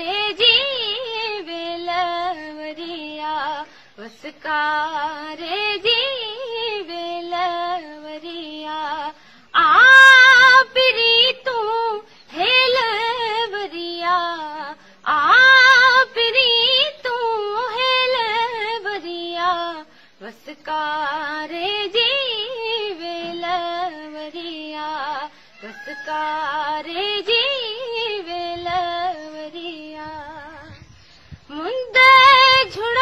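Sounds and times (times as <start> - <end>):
singer breathing: 3.7 - 4.0, 9.2 - 9.5, 19.9 - 20.2, 25.3 - 25.6.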